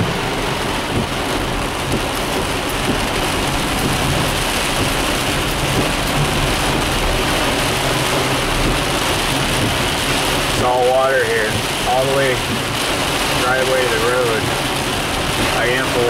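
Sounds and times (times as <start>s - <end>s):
car engine hum: 0.0s - 16.0s
heavy rain on car roof: 0.0s - 16.0s
road noise: 0.0s - 16.0s.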